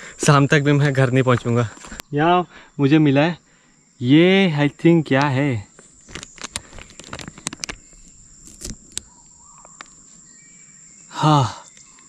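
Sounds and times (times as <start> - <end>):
high-pitched insect tone: 0.0 - 12.0
sharp crackles and rustles: 5.2 - 10.3
man making short vocal sound: 11.1 - 11.6.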